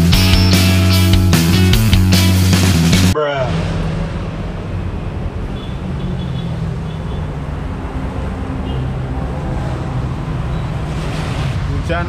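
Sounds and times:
vehicle engine humming: 0.0 - 11.8.

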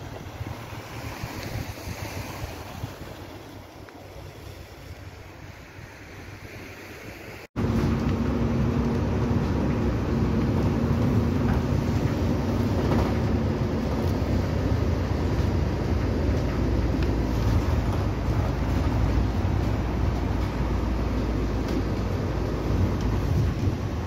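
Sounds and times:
bus engine rumble inside cabin: 7.6 - 24.0.

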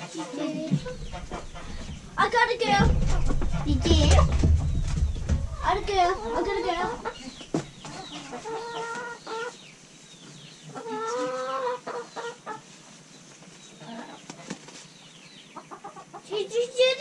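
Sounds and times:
hens clucking: 0.0 - 9.7, 10.7 - 13.0.

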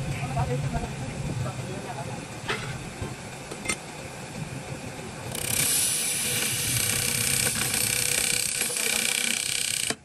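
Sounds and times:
faint machine whine: 0.0 - 10.0
woodworking machine hissing: 5.3 - 10.0.

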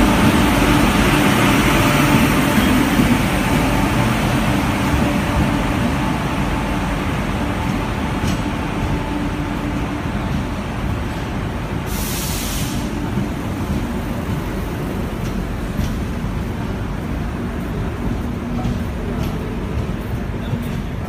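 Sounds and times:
train wheels rumbling on rail: 0.0 - 21.0
brief hiss: 11.8 - 13.0.

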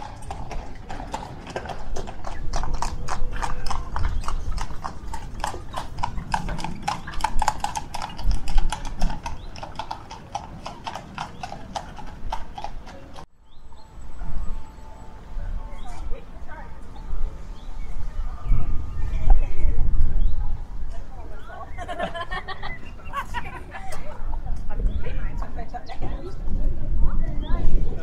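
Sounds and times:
horse hooves clip-clopping: 0.0 - 13.3.

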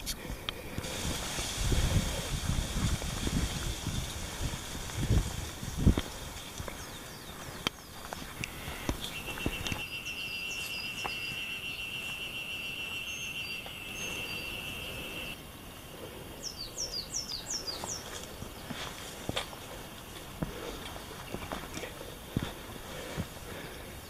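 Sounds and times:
small birds chirping: 2.2 - 19.0
buzzing insect trill: 8.5 - 15.4.

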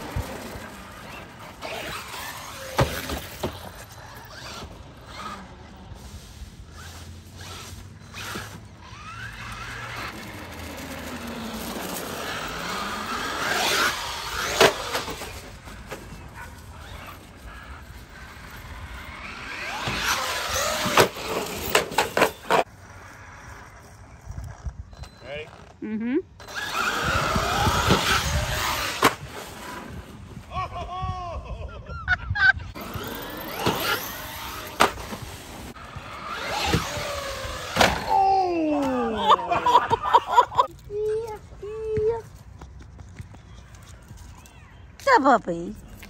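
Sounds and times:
toy trucks landing with knocks: 1.2 - 3.8, 32.8 - 35.3
tyre squeals: 6.8 - 22.6
electric motor whine: 7.4 - 15.6, 26.4 - 29.8, 32.8 - 38.1.

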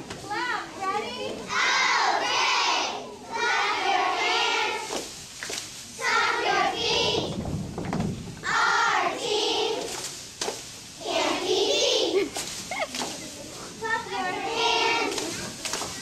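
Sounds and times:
children chanting a cheer: 1.2 - 5.1, 6.0 - 7.4, 8.4 - 10.0, 11.0 - 12.2, 13.8 - 16.0.

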